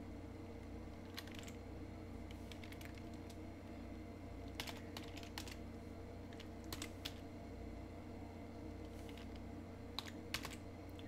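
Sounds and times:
steady low hum: 0.0 - 11.0
keyboard typing: 1.0 - 1.6, 2.4 - 3.4, 4.5 - 5.6, 6.3 - 7.2, 10.0 - 11.0.

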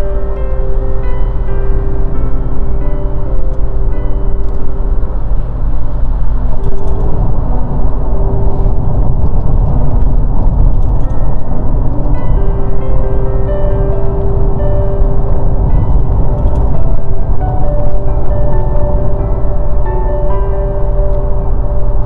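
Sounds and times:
car engine and road rumble: 0.0 - 22.0.

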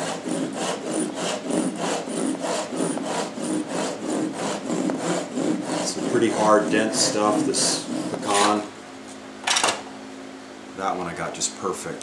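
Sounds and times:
hand saw cutting wood: 0.0 - 8.7.

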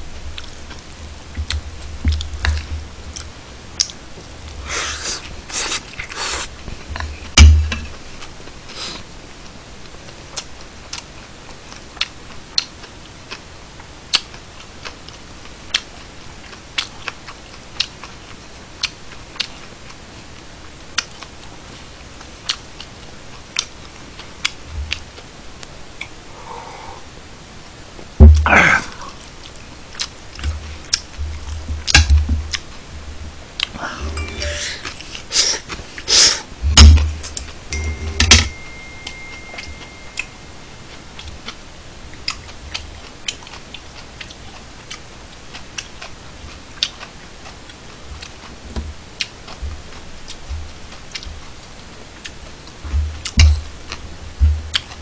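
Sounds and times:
low thumps: 7.3 - 7.9
chewing: 8.2 - 20.0, 40.9 - 48.6, 49.2 - 54.0.

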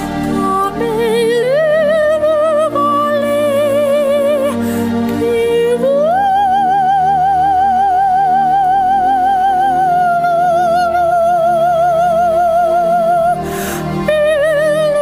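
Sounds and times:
soft accompaniment: 0.0 - 15.0
soprano singing with vibrato: 0.0 - 15.0.

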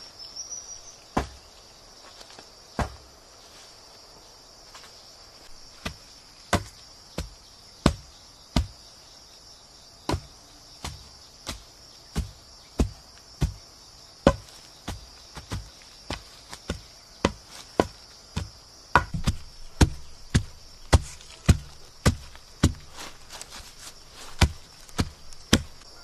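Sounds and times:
insects buzzing: 0.0 - 26.0
blade chopping wood: 1.2 - 1.4, 2.8 - 3.0, 10.1 - 11.6, 14.3 - 23.1, 24.2 - 25.9.

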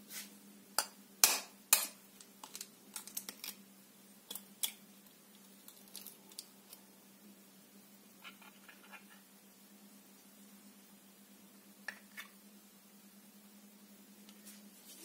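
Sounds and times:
eggshell clicks and crackles: 0.8 - 3.6, 4.3 - 6.8.

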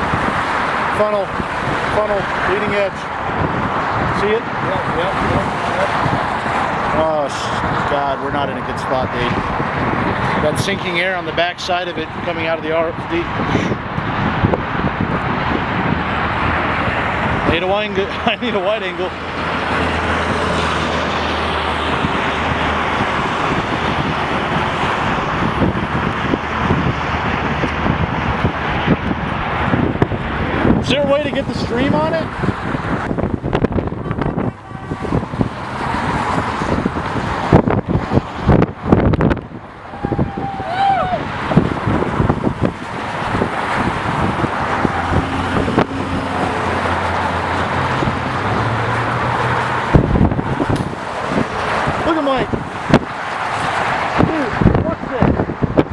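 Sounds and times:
road traffic rushing: 0.0 - 55.9
wind: 0.0 - 55.9
low vehicle engine hum: 13.2 - 55.9.

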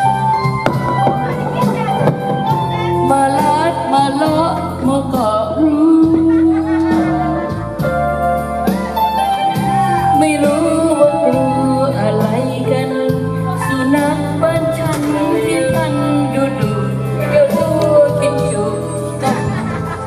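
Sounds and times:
person singing: 8.8 - 20.0.

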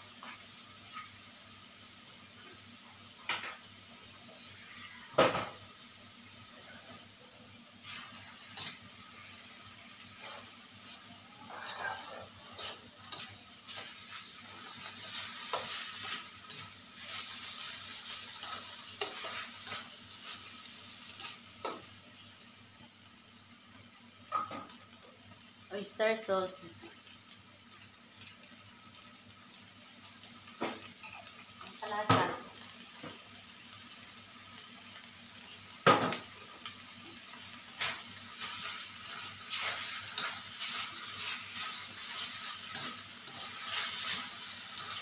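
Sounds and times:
light frying sizzle: 0.0 - 45.0.

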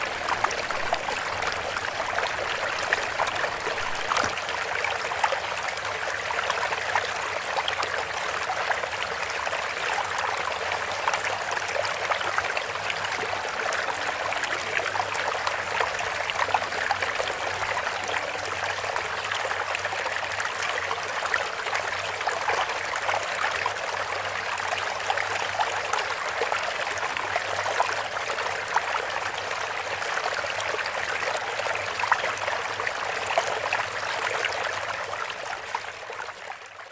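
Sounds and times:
water running and trickling: 0.0 - 7.5.

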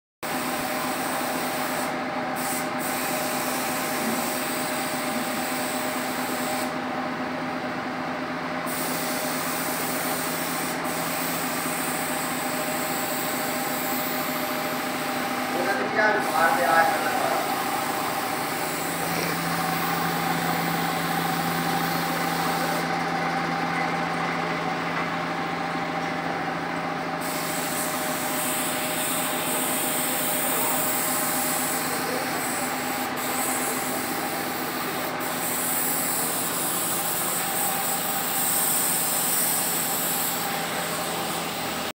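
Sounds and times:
paint spray gun hissing: 0.3 - 6.8, 8.6 - 23.1, 27.2 - 41.9
steady machine hum: 6.8 - 41.9.

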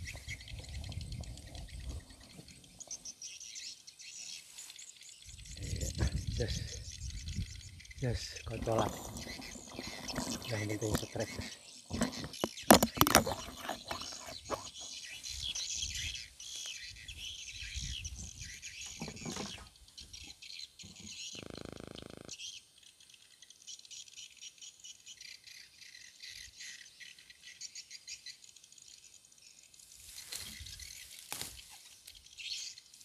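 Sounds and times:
birds chirping: 0.0 - 33.0
insects chirping: 0.0 - 33.0
rustling and knocks: 8.7 - 14.8, 18.9 - 19.6.

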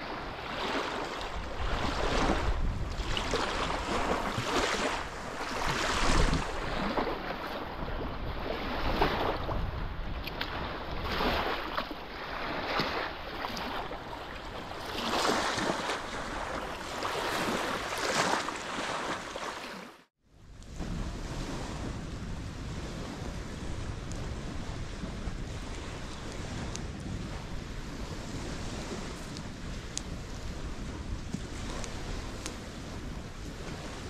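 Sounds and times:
wind rumbling on microphone: 0.0 - 19.4, 20.3 - 34.0
waves washing onto sandy shore: 0.0 - 34.0.

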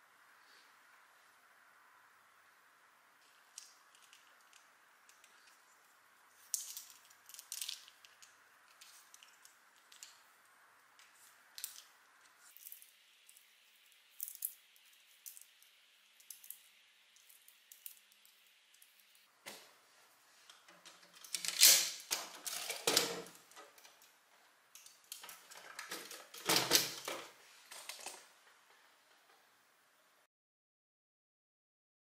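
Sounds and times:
faint hiss: 0.0 - 20.7
plastic pieces clicking and rattling: 3.5 - 5.6, 6.5 - 10.2, 11.5 - 11.9, 14.2 - 19.2, 24.8 - 28.2.

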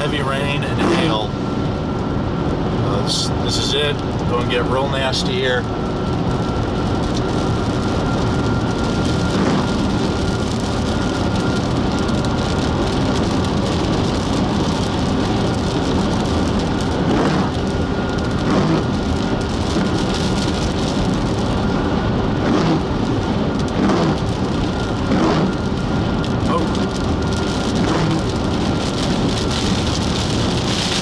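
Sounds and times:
heavy rain on car: 0.0 - 31.0
tyre noise on wet road: 2.7 - 31.0
windshield wiper sweeping: 18.4 - 19.0, 23.6 - 25.6.

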